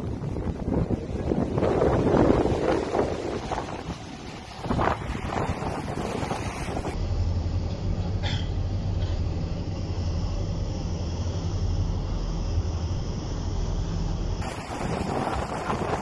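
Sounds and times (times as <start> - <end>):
wind buffeting microphone: 0.0 - 7.0, 14.4 - 16.0
boat engine hum: 0.0 - 16.0.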